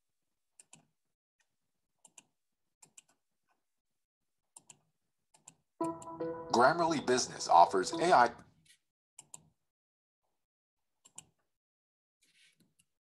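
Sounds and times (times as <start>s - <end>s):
computer mouse clicks: 0.6s - 0.9s, 2.0s - 3.2s, 4.5s - 5.6s, 9.2s - 9.5s, 11.0s - 11.4s
advertisement music and voice: 5.8s - 8.4s.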